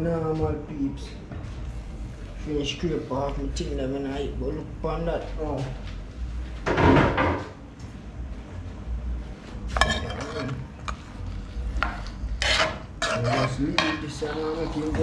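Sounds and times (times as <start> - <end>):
spoon scraping in metal pot: 9.8 - 11.1, 11.8 - 14.9.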